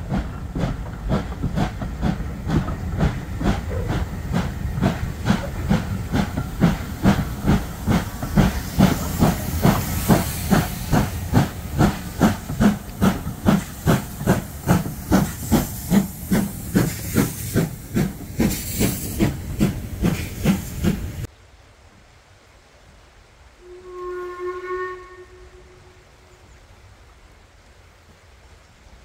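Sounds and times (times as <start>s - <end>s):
steam hiss: 0.0s - 21.3s
steam locomotive exhaust chuffs: 0.0s - 21.3s.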